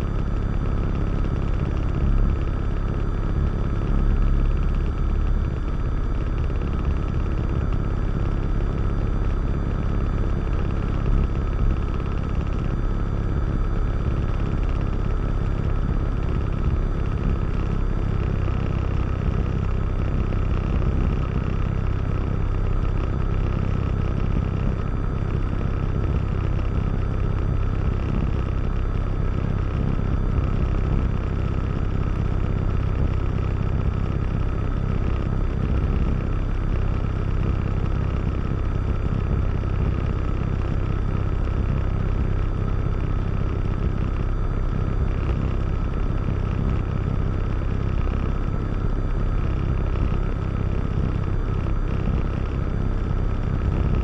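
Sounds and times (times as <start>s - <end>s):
airplane engine and propeller drone: 0.0s - 54.0s.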